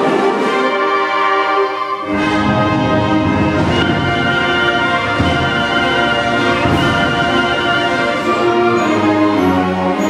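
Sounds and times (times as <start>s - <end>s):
concert band playing chords: 2.1s - 10.0s.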